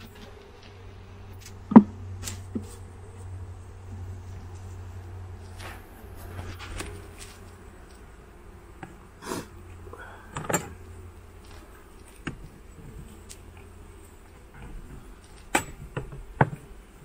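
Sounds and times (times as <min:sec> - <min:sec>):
honeybees humming: 0:00.0 - 0:17.0.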